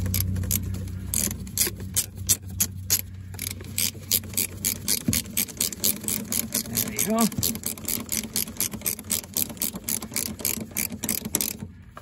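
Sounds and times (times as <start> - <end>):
ratchet wrench clicking: 0.0 - 11.7.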